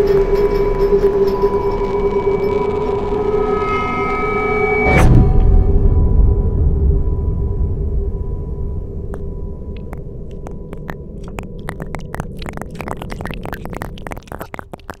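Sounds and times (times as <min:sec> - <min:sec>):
sharp clicks: 0:09.2 - 0:15.0.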